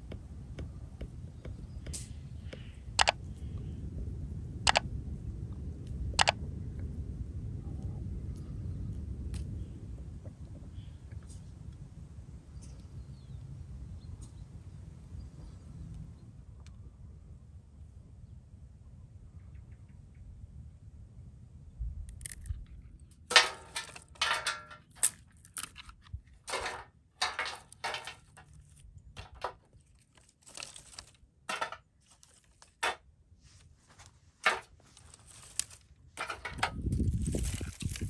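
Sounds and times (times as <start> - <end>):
dry twigs crackling and rattling: 22.1 - 22.5, 23.2 - 33.0, 34.4 - 38.0
branches rustling: 27.3 - 32.8, 33.4 - 38.0.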